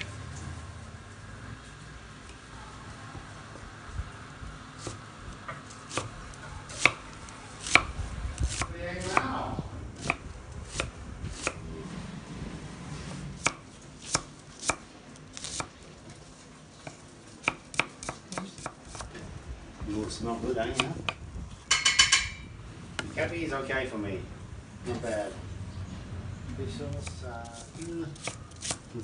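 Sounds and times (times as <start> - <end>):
knife chopping on wooden board: 6.7 - 7.0, 7.6 - 9.3, 16.8 - 19.1, 20.7 - 21.2, 27.0 - 28.8.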